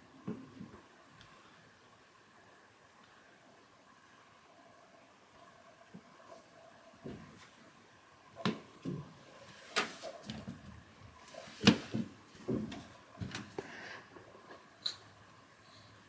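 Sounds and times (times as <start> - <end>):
light knocks and soft thumps: 7.0 - 7.6, 8.4 - 9.2, 9.8 - 13.7.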